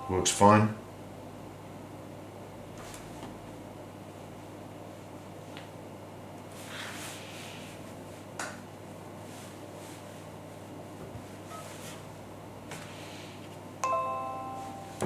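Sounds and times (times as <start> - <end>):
device connection chime: 13.8 - 15.0.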